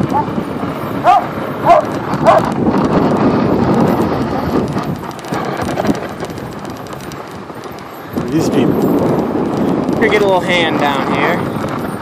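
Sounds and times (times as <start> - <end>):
sled runners hissing on snow: 0.0 - 12.0
dog barking: 1.0 - 2.5.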